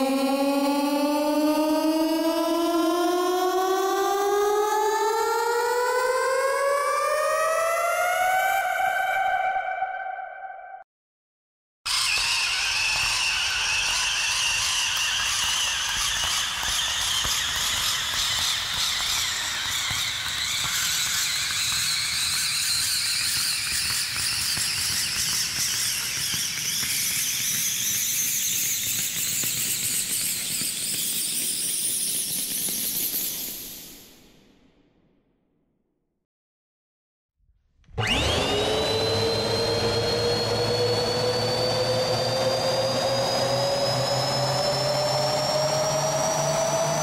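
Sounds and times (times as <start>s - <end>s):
cinematic riser with climbing tones: 0.0s - 10.8s, 38.0s - 47.0s.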